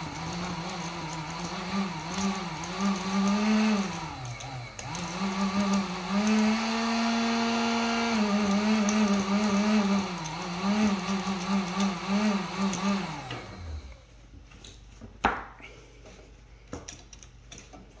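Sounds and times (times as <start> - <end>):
heat gun fan motor wavering: 0.0 - 14.1.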